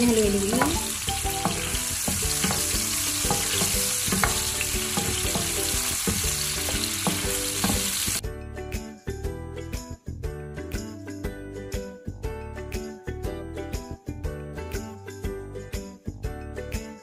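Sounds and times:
food sizzling in hot oil: 0.0 - 8.2.

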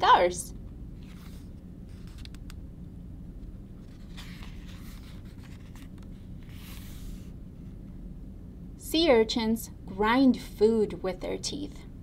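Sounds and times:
low room hum: 0.0 - 12.0
paper page rustling: 1.0 - 2.4, 3.8 - 7.3.

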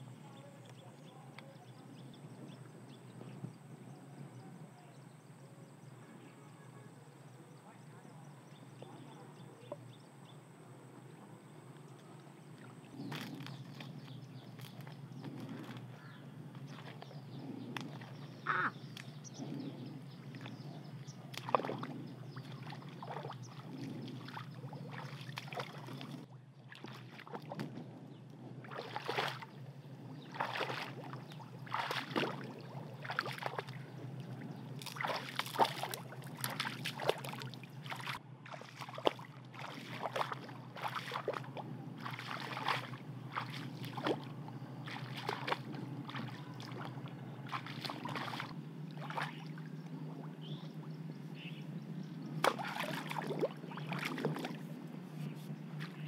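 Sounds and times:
wading through muddy water: 7.2 - 56.0
bare feet squelching in mud: 12.6 - 19.6, 20.2 - 27.8, 28.6 - 50.6, 52.2 - 56.0.

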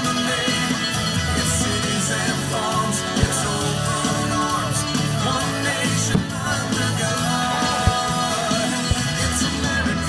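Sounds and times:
rock song with guitar and vocals: 0.0 - 10.0
deep thumps: 6.1 - 6.8.

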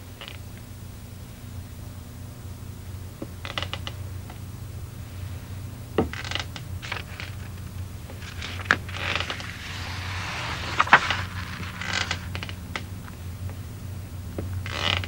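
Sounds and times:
steady low hum: 0.0 - 15.0
creaks and sharp clicks: 3.4 - 4.4, 6.0 - 13.2.

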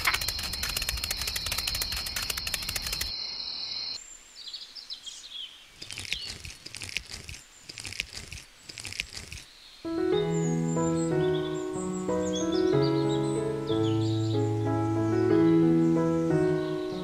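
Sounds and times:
rapid dense clicking: 0.0 - 3.1.

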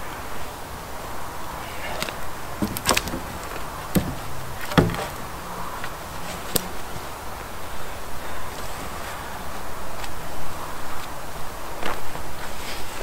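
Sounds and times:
wooden poles knocking together: 1.8 - 6.8.

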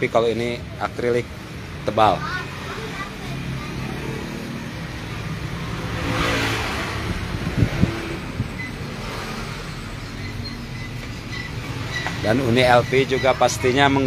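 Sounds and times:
vehicle passing by: 1.7 - 14.0.

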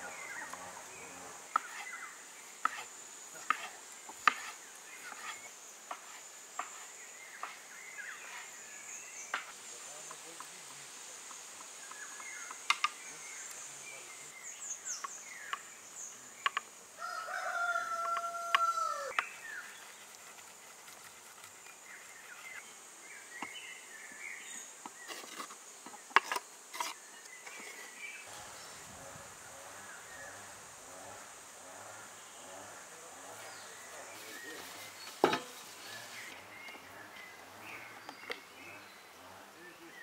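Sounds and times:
high insect drone: 0.0 - 40.0
rooster crowing: 17.0 - 19.2.

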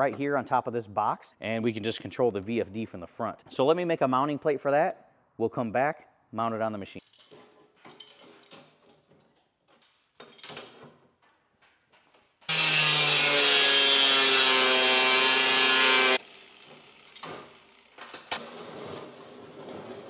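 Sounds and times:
angle grinder cutting steel: 12.5 - 18.0.

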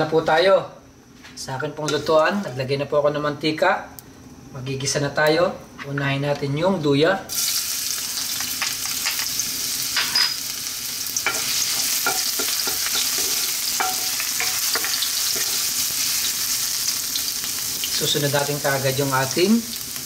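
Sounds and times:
ginger sizzling in hot oil: 7.3 - 20.0
spatula tapping and scraping pan: 11.2 - 15.6.

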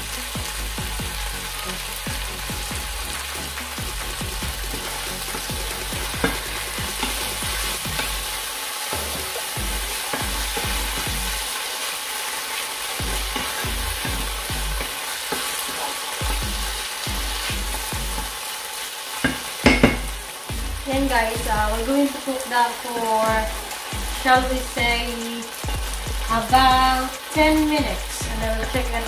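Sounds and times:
livers sizzling in a frying pan: 0.0 - 29.0
spatula scraping and tapping pan: 4.7 - 8.3, 13.0 - 18.3, 19.2 - 20.2.

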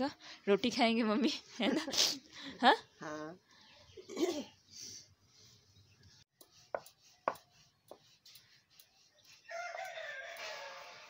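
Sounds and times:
rooster crowing: 9.5 - 11.0.

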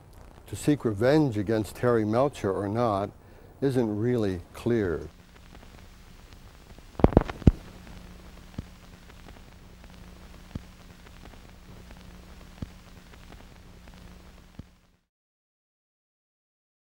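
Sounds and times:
recording hum and hiss: 0.0 - 15.1
clicks: 7.0 - 7.7.

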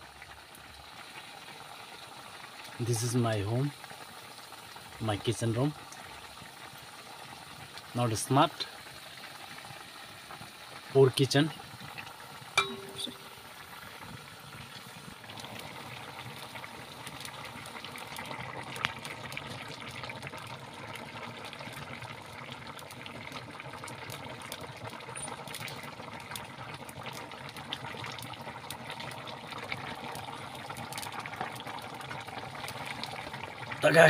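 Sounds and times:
curry bubbling at a boil: 0.0 - 34.0
wood fire crackling: 13.2 - 34.0.

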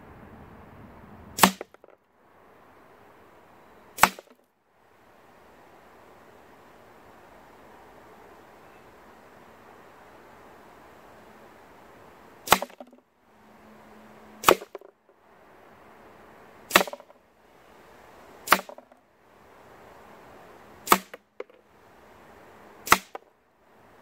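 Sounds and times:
air rifle shots: 1.4 - 2.0, 4.0 - 4.4, 12.5 - 13.0, 14.4 - 14.9, 16.7 - 17.1, 18.4 - 18.9, 20.8 - 21.6, 22.8 - 23.2.

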